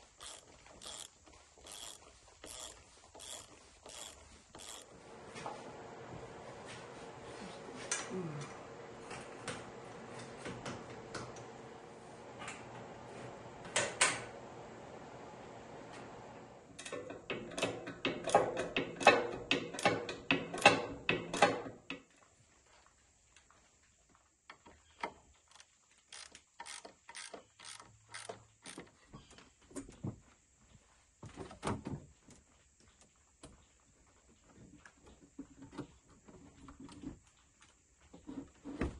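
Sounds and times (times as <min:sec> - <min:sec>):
ratchet clicks: 0:00.2 - 0:04.9, 0:25.4 - 0:28.8.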